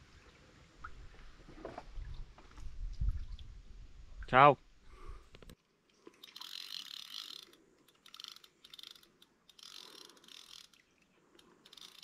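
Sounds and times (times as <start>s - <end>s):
fishing reel ratcheting clicks: 6.2s - 12.0s.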